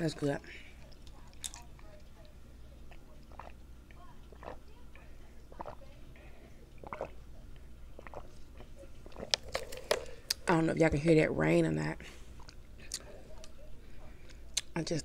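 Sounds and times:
gulping drink from bottle: 2.8s - 3.6s, 4.2s - 6.0s, 6.7s - 10.4s.

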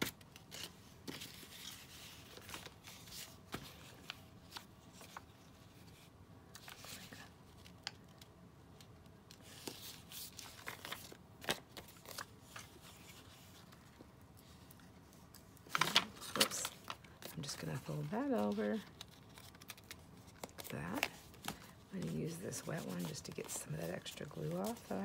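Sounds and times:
paper rustling: 9.3s - 25.0s.

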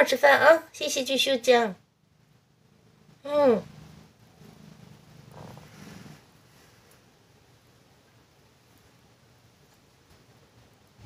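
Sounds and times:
cat low rumbling: 2.5s - 6.8s.

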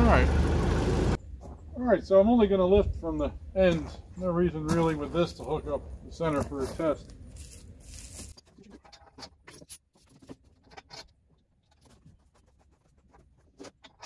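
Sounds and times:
chain clinking and rattling: 7.2s - 12.4s.

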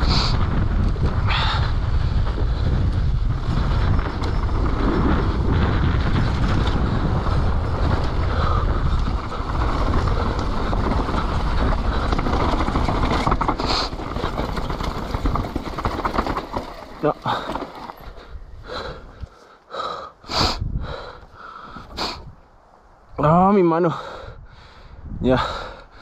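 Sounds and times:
wind rushing over microphone: 0.0s - 19.3s, 20.2s - 26.0s
bike rattling over rough ground: 0.0s - 19.4s.

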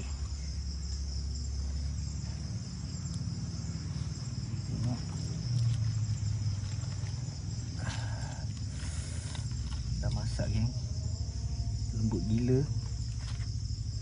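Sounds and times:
crickets chirping: 0.0s - 14.0s
faint ticks: 3.0s - 3.3s.

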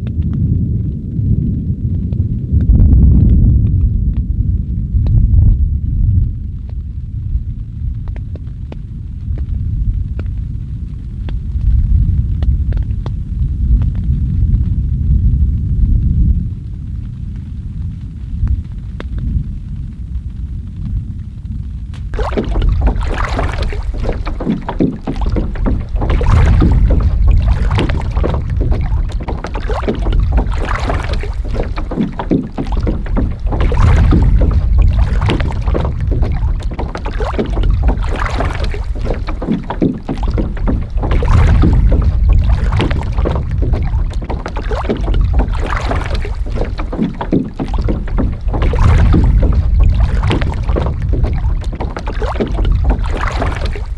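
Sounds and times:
strong wind buffeting microphone: 0.0s - 53.9s
water splashing and lapping: 22.0s - 53.9s.

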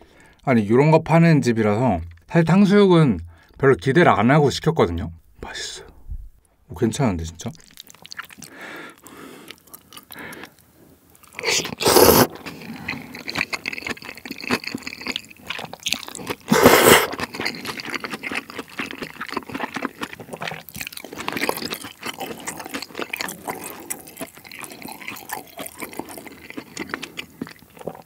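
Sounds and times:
slurping noodles: 11.3s - 15.0s, 15.7s - 18.4s
wet mouth clicks: 11.3s - 17.5s.

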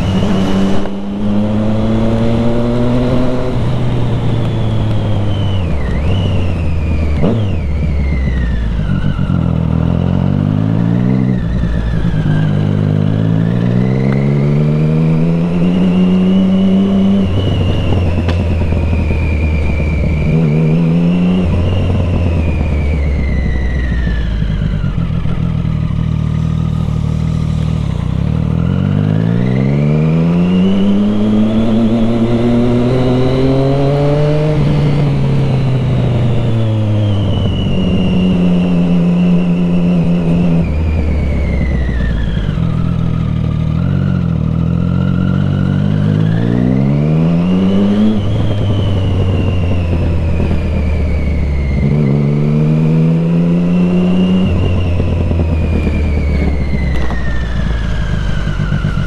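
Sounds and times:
motorcycle engine revving: 0.0s - 59.0s.

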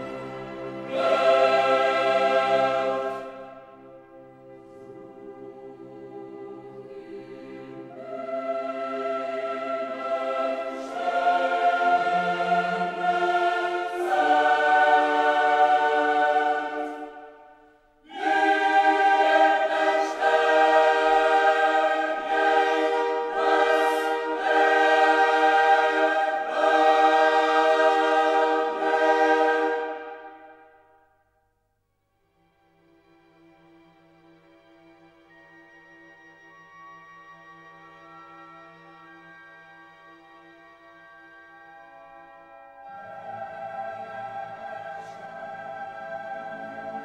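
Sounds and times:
choir singing held chords: 0.0s - 31.2s, 41.8s - 47.0s.

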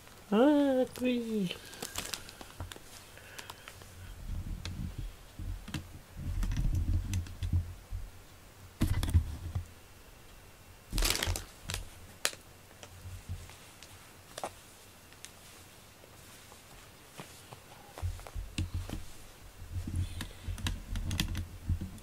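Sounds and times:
microphone handling noise: 4.1s - 8.1s, 17.5s - 22.0s.

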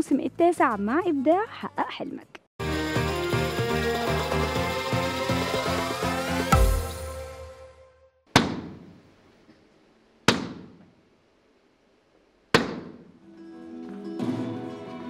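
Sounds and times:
music: 0.0s - 8.2s, 13.2s - 15.0s.

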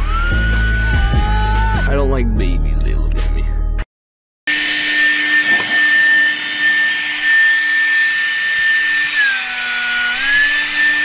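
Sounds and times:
power tool motor whine: 0.0s - 1.8s, 4.5s - 11.0s.

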